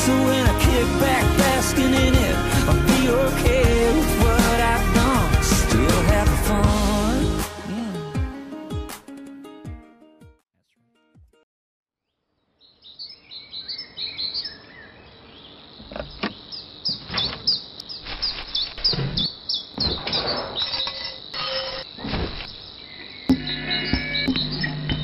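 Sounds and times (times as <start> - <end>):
birds chirping: 12.5 - 25.0.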